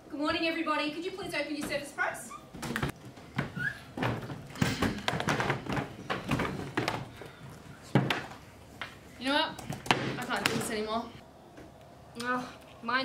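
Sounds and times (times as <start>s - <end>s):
laptops tapping and knocking on desks: 2.6s - 7.2s, 7.9s - 9.0s.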